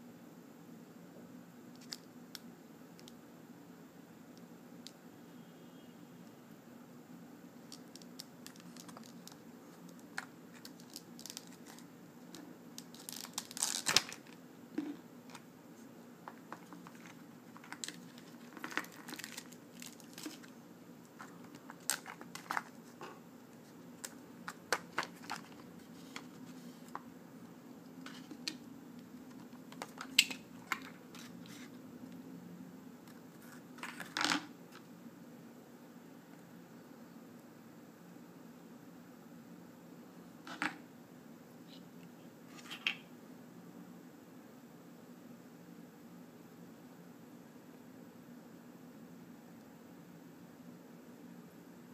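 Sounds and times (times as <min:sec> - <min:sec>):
plastic packaging crinkling: 0:07.6 - 0:15.4, 0:16.3 - 0:23.0, 0:24.0 - 0:26.9.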